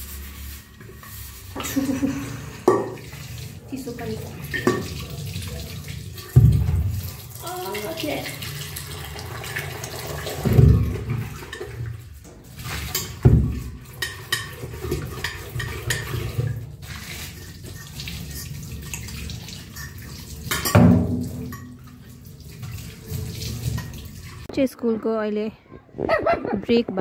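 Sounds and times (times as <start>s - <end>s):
utensils and pots clinking: 0.8s - 5.2s, 9.6s - 22.2s.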